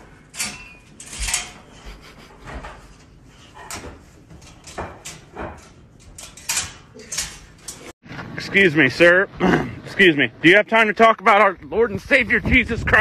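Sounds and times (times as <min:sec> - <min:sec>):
wire crate door rattling: 0:00.0 - 0:01.8, 0:02.4 - 0:07.9.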